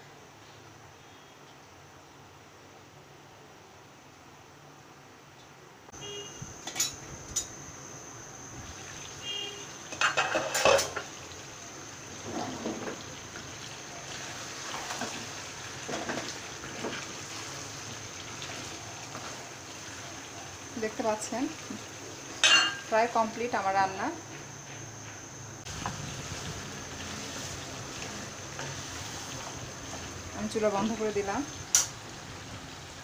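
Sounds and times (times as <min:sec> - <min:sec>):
cookware clattering: 0:09.9 - 0:11.1, 0:22.4 - 0:22.9
wooden spatula scraping a pan: 0:25.7 - 0:31.1.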